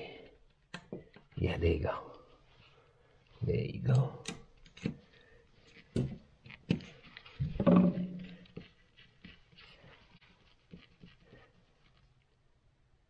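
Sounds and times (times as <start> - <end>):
screwdriver metal clicks and scraping: 3.9 - 6.1.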